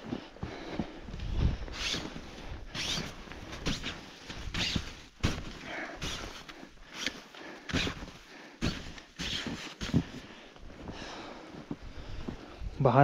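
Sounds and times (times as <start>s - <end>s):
hand tool scraping packed snow: 1.7s - 10.3s.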